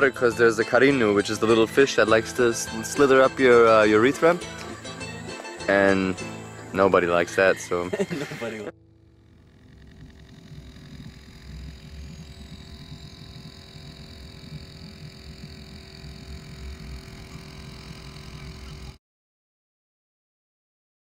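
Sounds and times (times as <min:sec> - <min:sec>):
boat motor rumble: 0:00.0 - 0:19.0.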